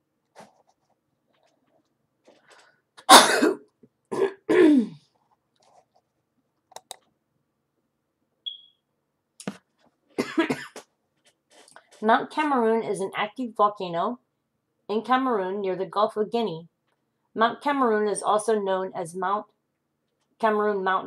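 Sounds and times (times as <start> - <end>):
person coughing: 3.0 - 5.0, 10.2 - 10.9.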